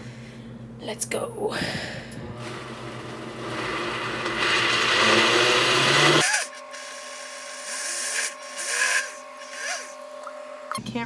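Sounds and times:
blender running: 2.3s - 10.7s.

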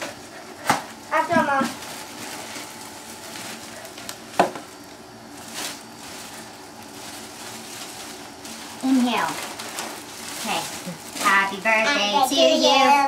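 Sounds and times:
rustling and handling: 0.0s - 12.9s.

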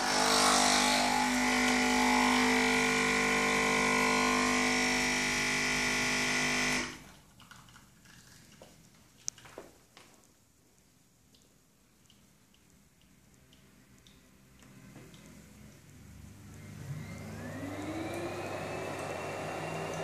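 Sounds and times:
appliance motor hum: 0.0s - 7.0s, 16.4s - 20.0s.

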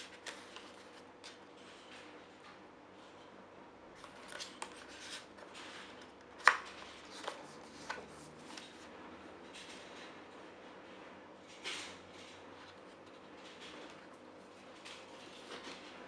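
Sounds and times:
stiff page turning: 0.0s - 1.4s.

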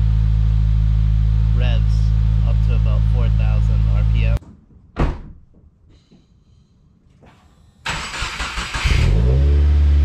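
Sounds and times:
car engine starting and revving: 7.8s - 10.0s.

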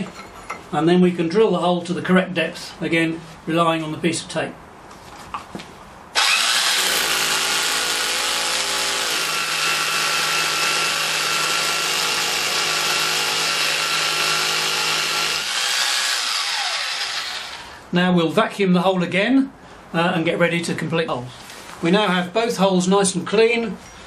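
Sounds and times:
motor winding down whine: 6.2s - 6.9s
hammer drill boring into concrete: 6.2s - 17.8s.

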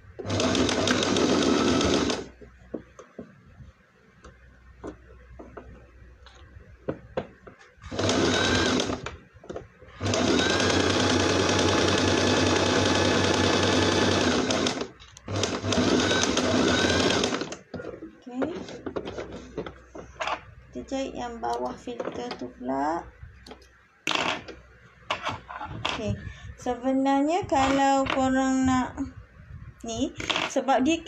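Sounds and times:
sewing machine stitching: 0.2s - 2.3s, 7.8s - 9.2s, 10.0s - 17.6s.

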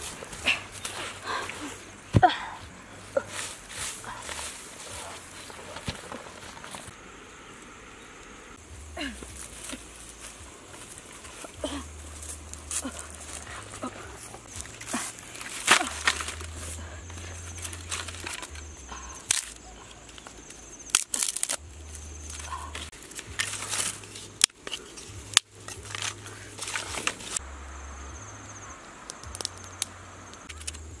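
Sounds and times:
dry grass crunching and rustling: 0.0s - 2.1s, 2.7s - 7.0s, 8.7s - 27.4s
wooden sticks clattering: 9.4s - 27.4s
dry sticks snapping: 10.7s - 27.4s, 29.0s - 30.9s.

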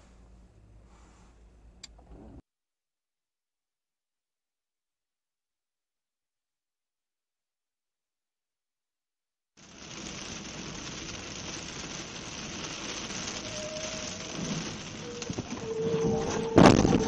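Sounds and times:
heavy rain on windscreen: 9.6s - 17.0s.

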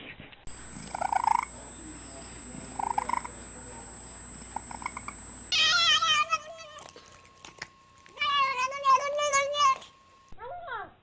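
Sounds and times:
steady high whine: 0.5s - 10.4s
cat purring: 0.7s - 3.6s.

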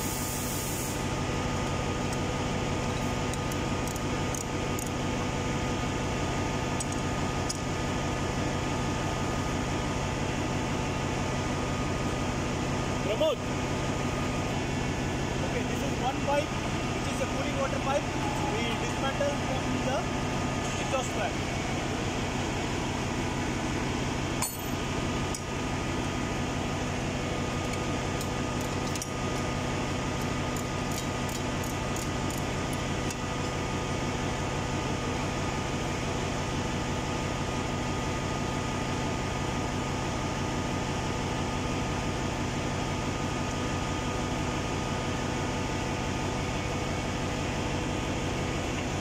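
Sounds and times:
engine room machinery hum: 0.0s - 49.0s
tools clinking on metal pipe: 24.4s - 25.4s.

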